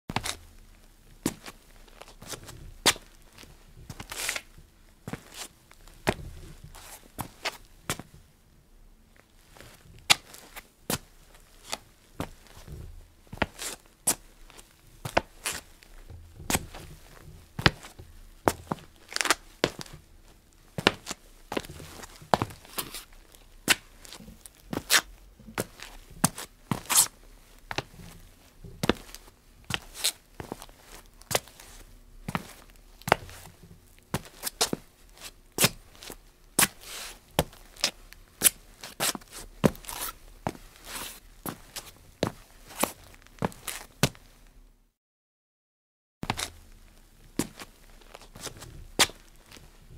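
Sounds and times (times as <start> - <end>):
foot scuffing: 0.1 - 0.5, 1.2 - 8.1, 9.5 - 20.1, 20.8 - 44.3, 46.2 - 46.6, 47.4 - 49.8
soft shuffling scrapes: 1.3 - 8.1, 38.8 - 43.9.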